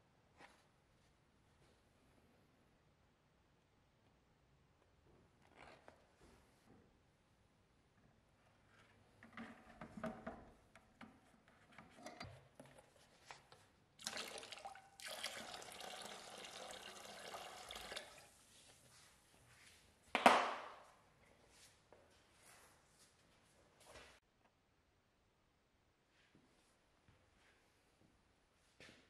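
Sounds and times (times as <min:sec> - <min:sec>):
liquid pouring into bucket: 0:14.0 - 0:18.4.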